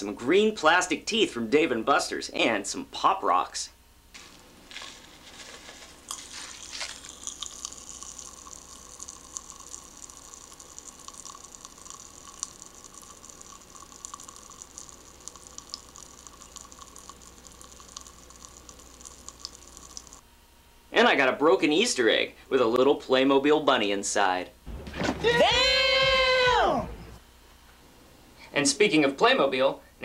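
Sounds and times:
candy tipped from packet: 0:04.1 - 0:07.9
popping candy crackling: 0:04.1 - 0:20.2.

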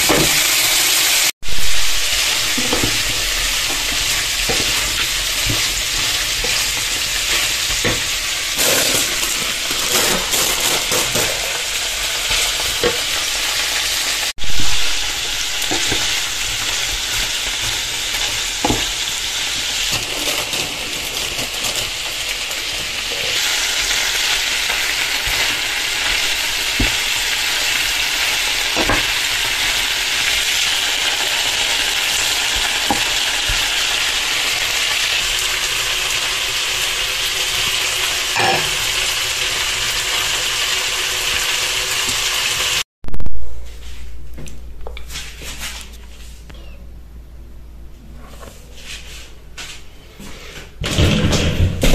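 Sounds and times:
food sizzling in a frying pan: 0:00.0 - 0:42.9.

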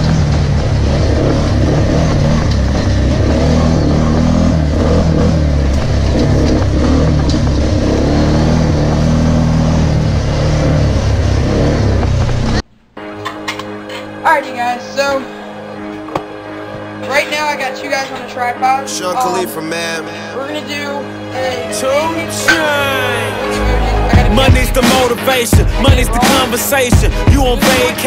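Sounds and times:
atv engine running: 0:00.0 - 0:12.7
music: 0:13.0 - 0:28.0.

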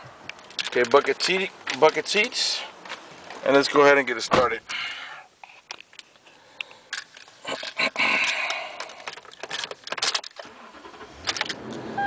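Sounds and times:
keys clicking and jingling: 0:06.9 - 0:10.4.

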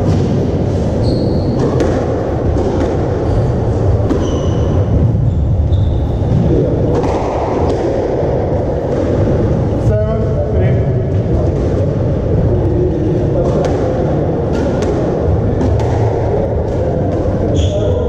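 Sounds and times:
court shoes squeaking: 0:00.0 - 0:07.2, 0:13.5 - 0:18.0
squash ball knocks: 0:01.5 - 0:03.4, 0:04.0 - 0:05.1, 0:06.3 - 0:09.5, 0:13.4 - 0:17.6.

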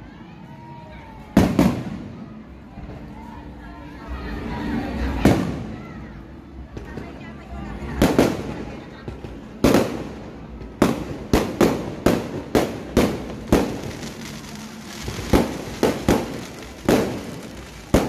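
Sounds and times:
fireworks bangs with echo: 0:01.3 - 0:03.0, 0:05.1 - 0:06.0, 0:07.8 - 0:18.0.

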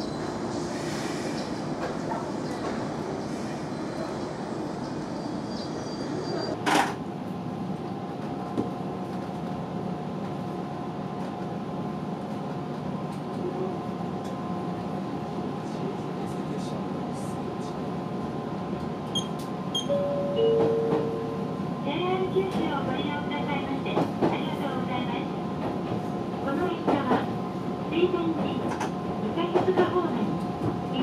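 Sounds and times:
electric train humming: 0:19.5 - 0:23.4.

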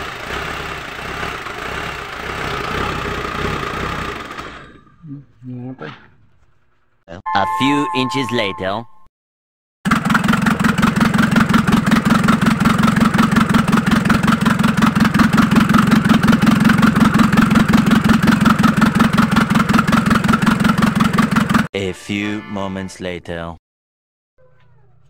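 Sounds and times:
diesel engine idling: 0:00.0 - 0:04.7, 0:09.9 - 0:21.7.

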